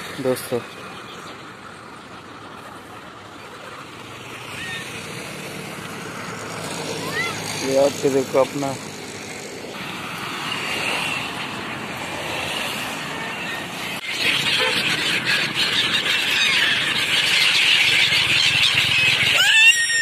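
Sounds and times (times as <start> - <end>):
gulls calling: 0.0 - 20.0.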